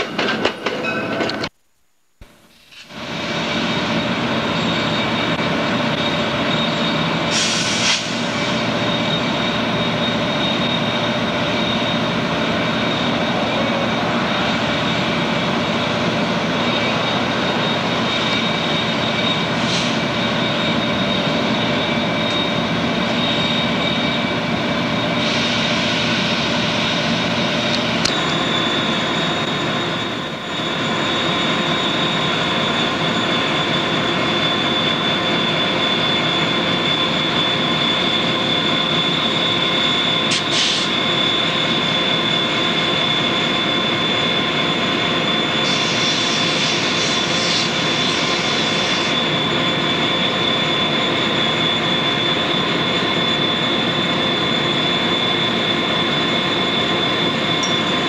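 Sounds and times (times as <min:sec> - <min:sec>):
high mechanical whine: 0:01.2 - 0:58.0
locomotive engine drone: 0:02.4 - 0:58.0
short air hisses: 0:07.3 - 0:08.6, 0:40.3 - 0:40.9.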